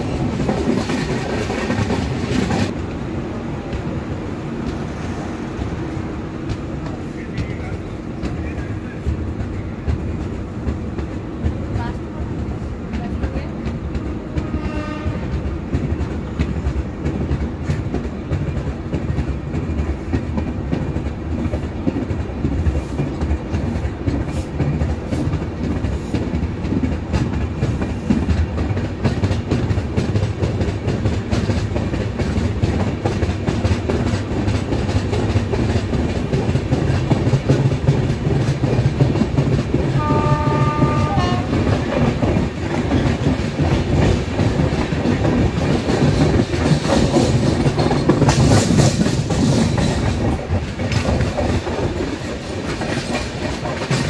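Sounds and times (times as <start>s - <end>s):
train wheels clickety-clack: 0.0s - 54.0s
locomotive horn: 14.4s - 15.3s, 39.9s - 41.8s.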